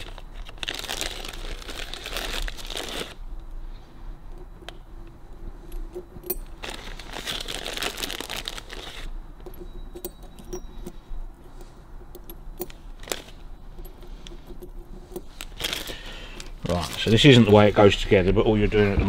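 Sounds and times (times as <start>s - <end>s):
plastic bag rustling: 0.0s - 3.3s, 5.5s - 9.6s, 12.6s - 19.0s
steel rollers clicking and clinking: 9.4s - 17.8s.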